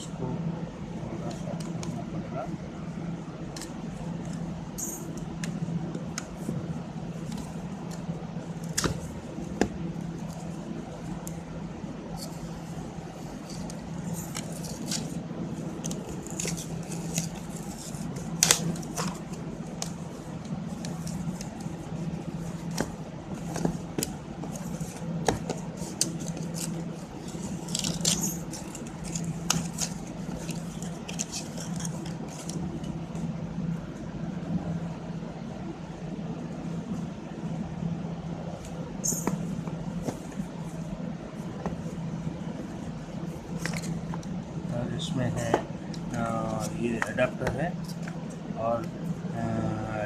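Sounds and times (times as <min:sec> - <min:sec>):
steady low hum: 0:00.0 - 0:50.0
card and plastic rustling: 0:13.2 - 0:33.3.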